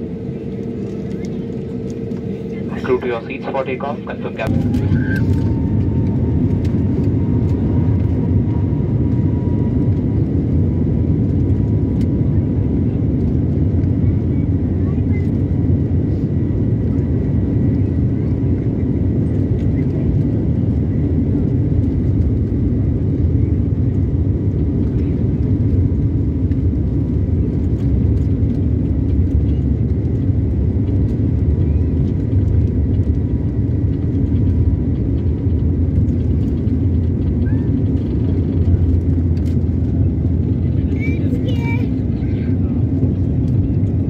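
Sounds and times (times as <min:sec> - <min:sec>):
faint steady whine: 0:00.0 - 0:08.7
jet engines rumbling at takeoff: 0:00.0 - 0:44.0.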